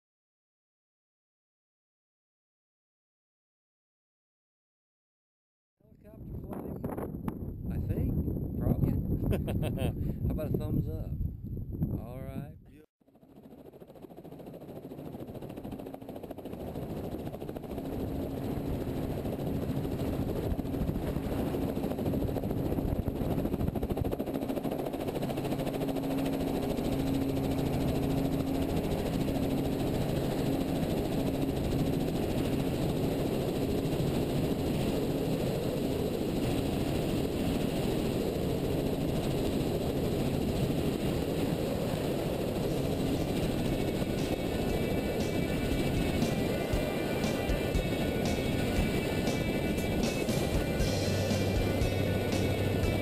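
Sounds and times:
helicopter engine and rotor: 13.0 - 53.0.

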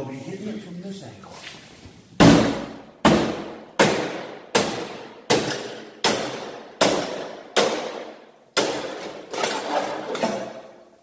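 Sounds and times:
hatchet striking metal panel: 2.2 - 9.5.

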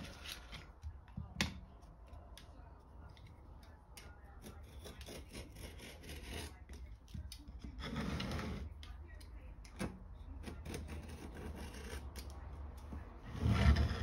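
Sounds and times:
blade scraping patch material: 0.0 - 0.8, 3.3 - 8.9, 9.7 - 14.0.

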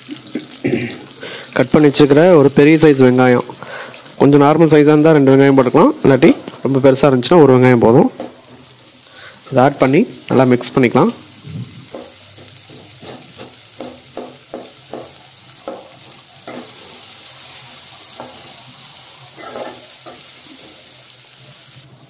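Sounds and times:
onions sizzling in oil: 0.0 - 22.0
metal spatula scraping pot: 19.4 - 19.9.

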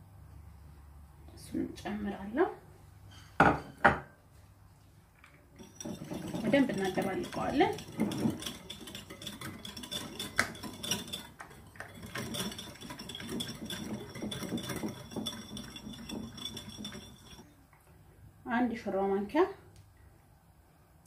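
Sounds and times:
wire whisk clicking in bowl: 5.6 - 17.4.

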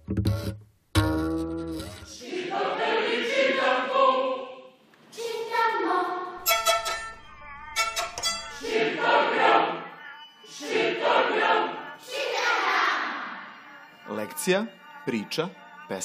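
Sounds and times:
choir singing: 2.1 - 16.0
instrumental accompaniment: 6.4 - 9.6.

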